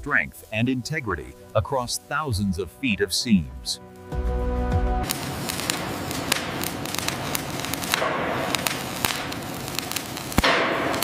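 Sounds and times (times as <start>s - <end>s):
arc welding crackling hiss: 0.0s - 4.2s, 5.0s - 11.0s
sharp pops of spatter: 5.0s - 11.0s.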